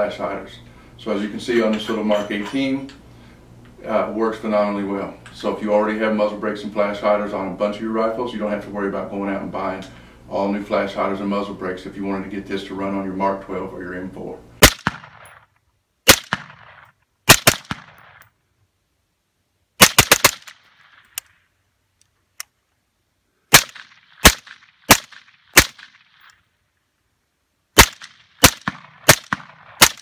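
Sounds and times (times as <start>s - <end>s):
suppressed rifle shots: 14.6s - 15.5s, 16.1s - 18.3s, 19.8s - 21.3s, 23.5s - 26.3s, 27.8s - 30.0s.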